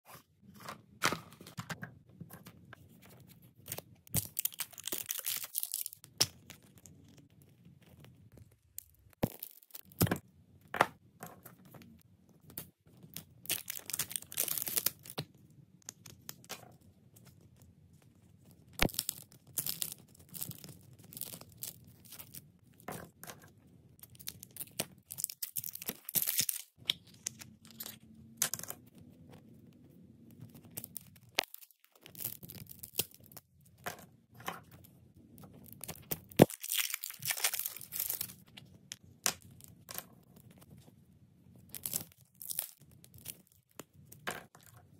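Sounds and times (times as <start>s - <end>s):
slime crackling and tearing: 4.1s - 7.1s, 13.4s - 15.2s, 18.8s - 22.4s, 24.0s - 27.9s, 30.5s - 33.4s, 35.6s - 38.5s, 41.7s - 43.6s.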